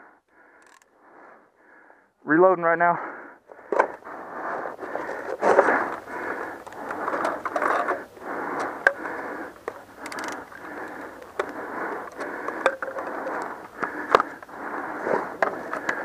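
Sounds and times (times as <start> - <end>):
sharp clicks: 8.6 - 12.4.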